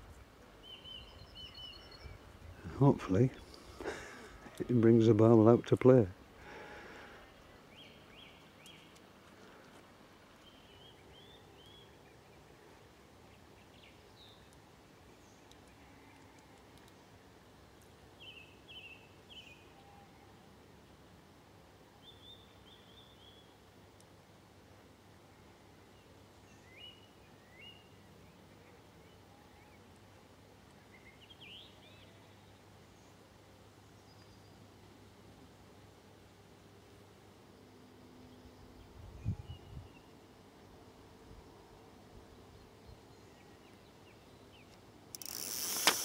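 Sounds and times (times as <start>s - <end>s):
faint bird chirps: 0.6s - 2.3s.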